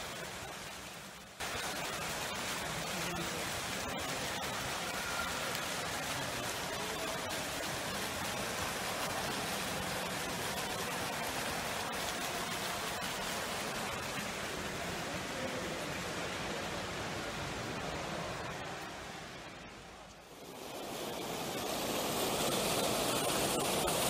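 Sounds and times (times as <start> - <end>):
fountain jet splashing: 0.0 - 24.0.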